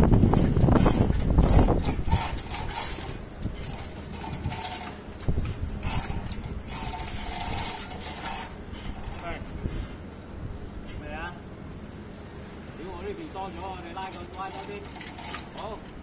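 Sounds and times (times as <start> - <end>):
wind buffeting microphone: 0.0 - 11.1
electric hoist whining: 0.0 - 16.0.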